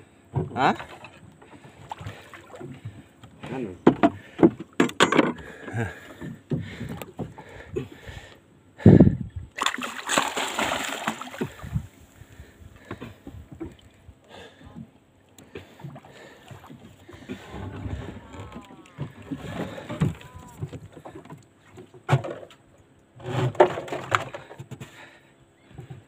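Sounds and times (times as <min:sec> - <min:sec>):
thumps on wooden boat: 0:02.6 - 0:05.5, 0:17.2 - 0:21.4
water splashing: 0:09.6 - 0:12.1, 0:15.5 - 0:21.8.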